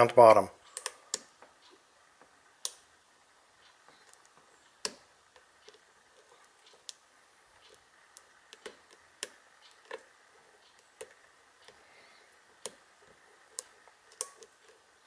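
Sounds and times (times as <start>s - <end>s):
lock pick clicking on pins: 0.7s - 1.3s.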